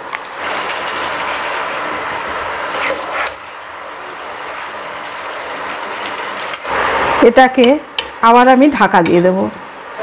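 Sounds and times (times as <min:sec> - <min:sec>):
food sizzling in pan: 0:00.2 - 0:07.2.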